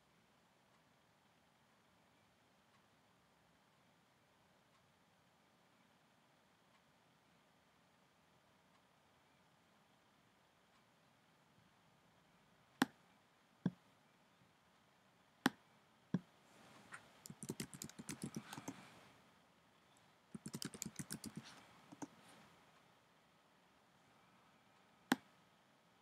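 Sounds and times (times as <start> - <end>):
mouse clicks: 16.2 - 19.0, 20.4 - 22.4
computer keyboard typing: 17.2 - 18.9, 20.4 - 22.2.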